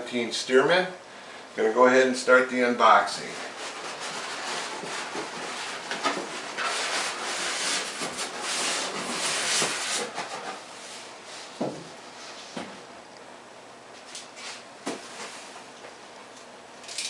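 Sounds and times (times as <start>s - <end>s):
cardboard scraping and rubbing: 3.2s - 11.1s.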